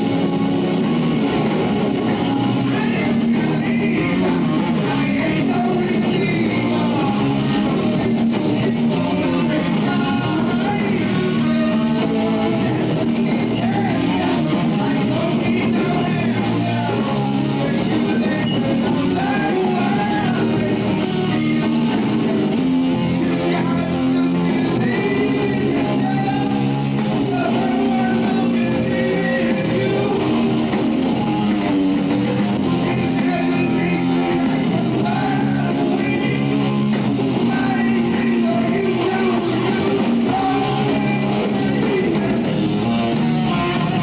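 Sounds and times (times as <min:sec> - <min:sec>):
bass guitar: 0:00.0 - 0:44.0
distorted electric guitar: 0:00.0 - 0:44.0
drums: 0:00.0 - 0:44.0
man singing: 0:00.0 - 0:44.0.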